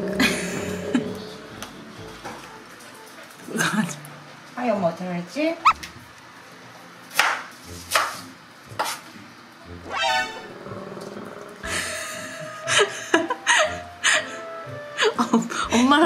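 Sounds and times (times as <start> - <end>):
held horn-like tone: 9.9 - 10.6.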